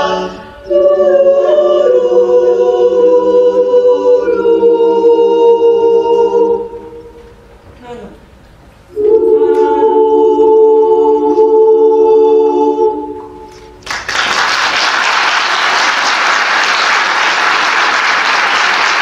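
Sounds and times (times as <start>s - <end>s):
choir holding a chord: 0.0s - 7.3s, 8.9s - 13.8s
audience applause: 13.8s - 19.0s.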